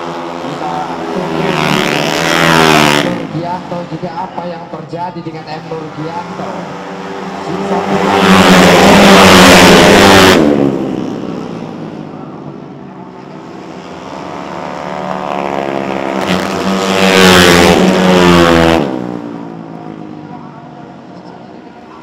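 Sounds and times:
scooter engine revving high: 0.0s - 4.1s, 5.5s - 11.9s, 13.4s - 20.1s.

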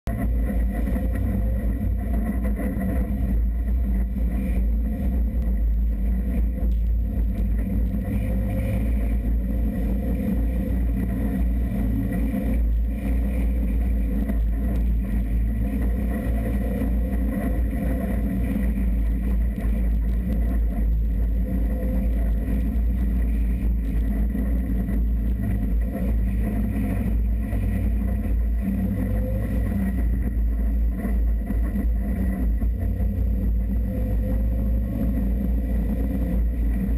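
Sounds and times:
off-road vehicle engine: 0.0s - 36.9s.

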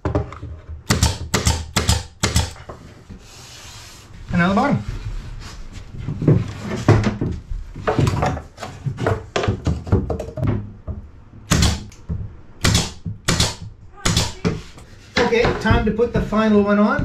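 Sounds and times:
pneumatic nailer shots: 0.8s - 2.6s, 11.5s - 11.9s, 12.6s - 14.5s
wooden strips knocking and scraping: 4.4s - 17.0s.

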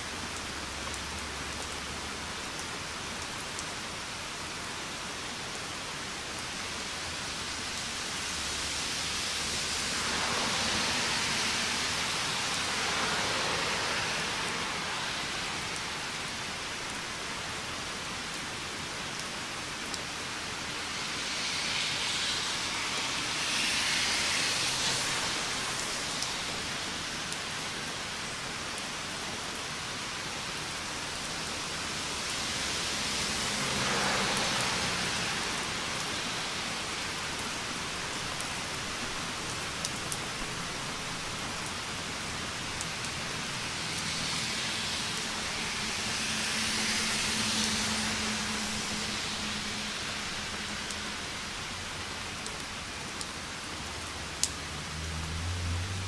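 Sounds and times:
rain falling on a street: 0.0s - 56.0s
raindrops ticking: 52.4s - 55.4s.

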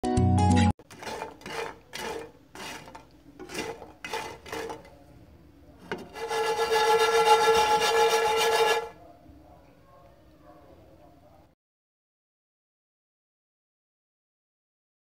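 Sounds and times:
spatula scraping frying pan: 0.8s - 5.0s, 5.8s - 9.0s
pan grinding on stove: 0.8s - 5.1s, 5.8s - 9.0s.

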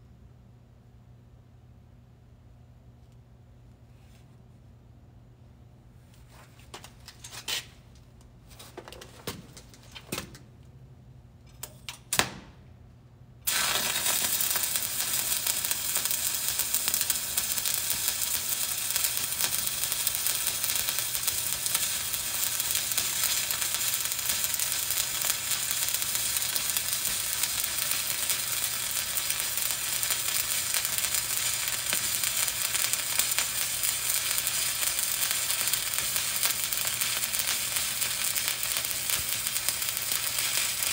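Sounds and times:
welding arc crackling sizzle: 13.4s - 40.9s.

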